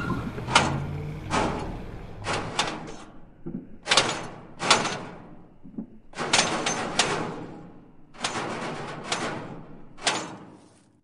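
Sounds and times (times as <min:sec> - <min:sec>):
loud clattering bangs: 0:00.0 - 0:10.6.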